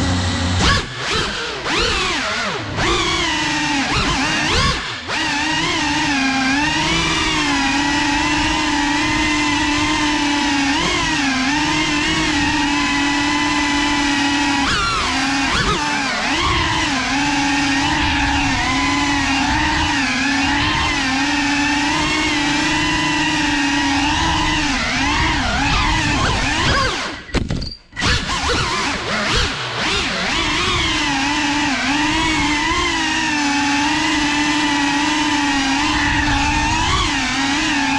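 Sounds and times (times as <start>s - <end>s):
quadcopter propellers whining: 0.0s - 37.9s.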